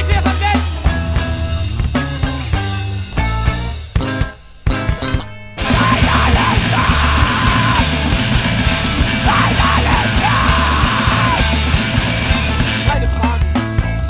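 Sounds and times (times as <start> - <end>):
hardcore punk music: 0.0 - 14.0
yelled screamed vocals: 5.6 - 12.3.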